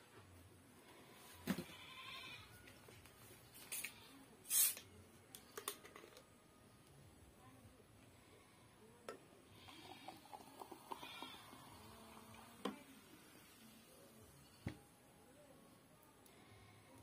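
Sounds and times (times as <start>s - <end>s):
carbonation hiss: 4.5s - 4.8s, 9.5s - 14.8s.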